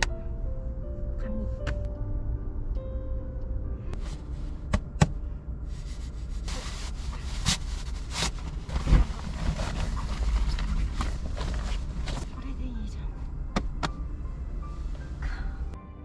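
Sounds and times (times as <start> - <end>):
steady low hum: 0.0 - 15.8
nylon fabric rustling: 5.8 - 12.2.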